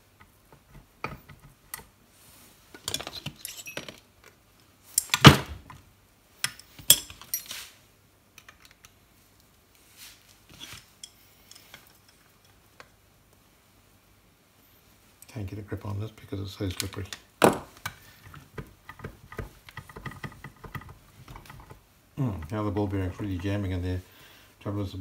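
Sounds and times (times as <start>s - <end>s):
metal parts clinking and knocking: 2.8s - 4.1s.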